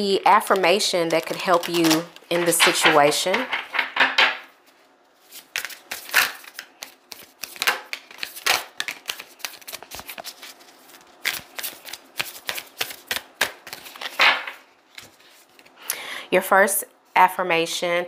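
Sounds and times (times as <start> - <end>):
cards being shuffled: 5.2 - 15.8.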